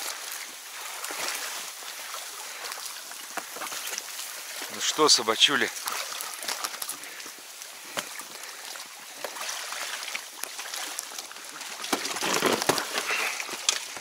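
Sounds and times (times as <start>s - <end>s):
reeds rustling: 0.0s - 14.0s
water sloshing: 0.0s - 14.0s
small knocks and scrapes: 11.8s - 14.0s.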